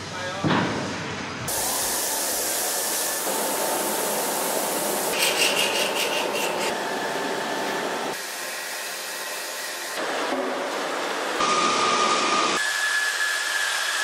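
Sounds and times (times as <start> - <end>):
paint spray gun hissing: 1.5 - 6.7.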